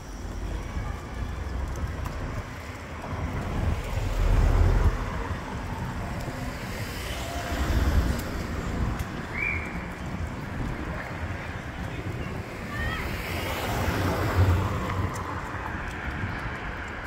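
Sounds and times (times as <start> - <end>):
street traffic passing: 0.0 - 17.0
wind buffeting microphone: 0.0 - 17.0.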